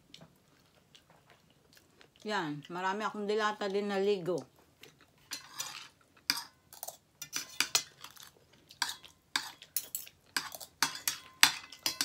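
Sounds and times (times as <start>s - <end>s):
cutlery scraping and clinking on plate: 5.2s - 12.0s.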